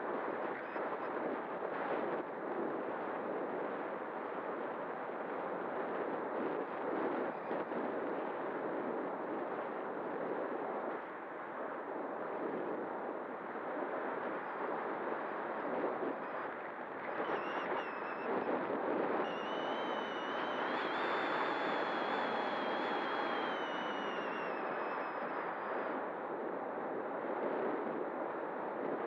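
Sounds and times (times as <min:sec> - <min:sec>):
high electric motor whine: 0:17.3 - 0:18.6, 0:19.2 - 0:25.9.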